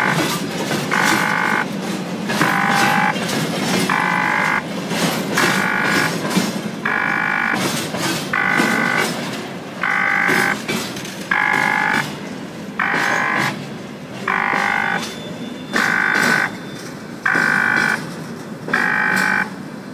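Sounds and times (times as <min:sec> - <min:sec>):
horn blasts: 0:00.0 - 0:01.7, 0:02.4 - 0:03.2, 0:03.9 - 0:04.6, 0:05.4 - 0:06.2, 0:06.8 - 0:09.2, 0:09.8 - 0:10.7, 0:11.3 - 0:12.1, 0:12.8 - 0:13.6, 0:14.3 - 0:16.6, 0:17.2 - 0:18.1, 0:18.7 - 0:19.5.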